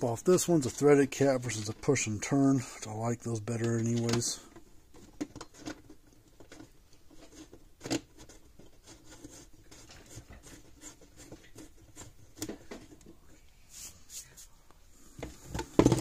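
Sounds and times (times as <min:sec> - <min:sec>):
threaded cap clicking and scratching: 0:04.9 - 0:12.6.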